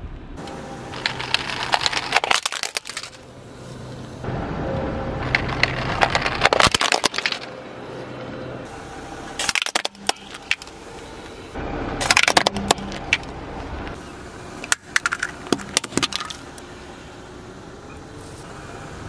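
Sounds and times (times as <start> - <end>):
car humming: 0.0 - 19.0
plastic toys cracking under tyre: 0.9 - 3.2, 5.2 - 7.5, 9.4 - 10.8, 12.0 - 13.3, 14.6 - 16.4.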